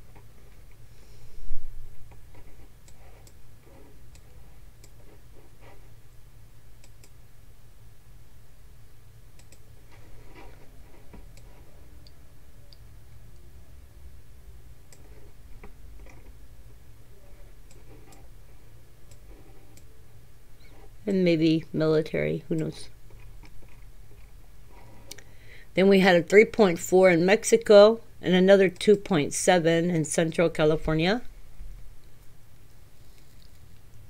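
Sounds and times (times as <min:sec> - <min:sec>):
low steady hum: 0:00.0 - 0:34.0
computer mouse clicking: 0:02.3 - 0:05.2, 0:06.8 - 0:07.2, 0:09.4 - 0:09.6, 0:17.6 - 0:18.3.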